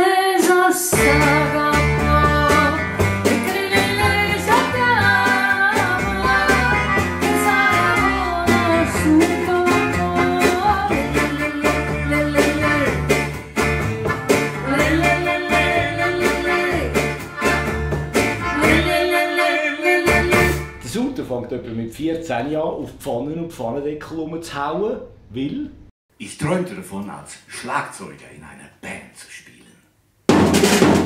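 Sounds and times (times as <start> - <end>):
woman singing: 0.0 - 13.0, 14.6 - 17.1, 18.4 - 20.7
drums: 0.4 - 19.1, 20.1 - 20.8, 30.2 - 31.0
plucked double bass: 1.0 - 19.1
strummed acoustic guitar: 1.0 - 19.1.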